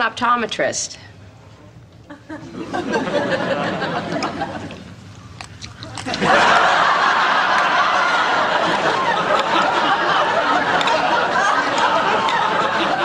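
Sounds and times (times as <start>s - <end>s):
studio audience laughing: 2.0s - 5.0s, 6.0s - 13.0s.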